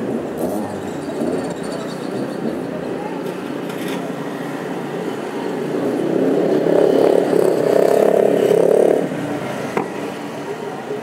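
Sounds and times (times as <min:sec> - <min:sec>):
city traffic hum: 0:00.0 - 0:11.0.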